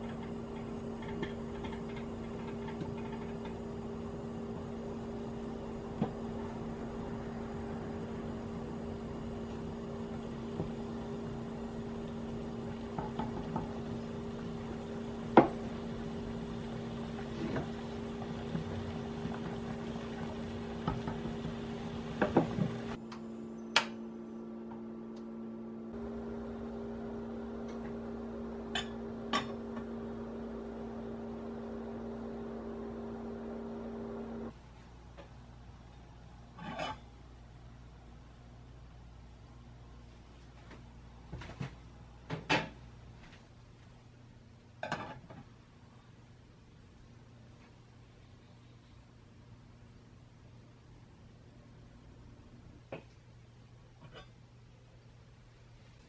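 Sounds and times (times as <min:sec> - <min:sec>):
pearls boiling in saucepan: 0:00.0 - 0:23.0, 0:26.0 - 0:34.5.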